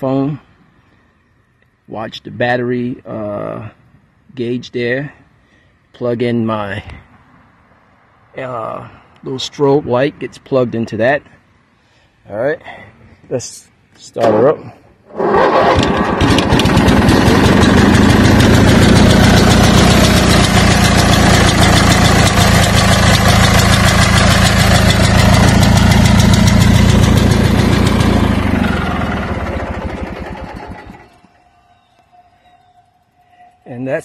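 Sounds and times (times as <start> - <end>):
garden tractor engine running: 15.2 - 31.4.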